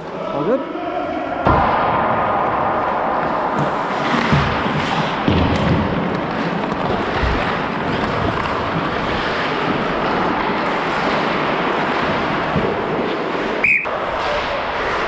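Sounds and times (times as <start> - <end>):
referee whistle blast: 13.6 - 13.9.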